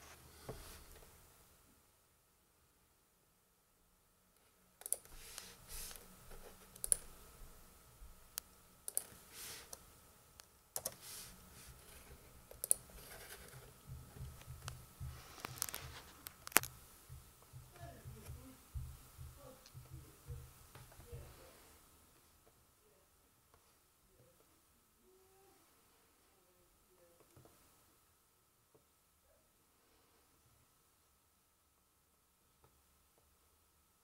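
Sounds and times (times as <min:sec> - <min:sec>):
laptop keys and touchpad clicking: 0:04.8 - 0:07.1, 0:08.4 - 0:09.8, 0:10.8 - 0:11.0, 0:12.4 - 0:21.2
dull low bumps: 0:13.9 - 0:15.2, 0:17.0 - 0:21.3.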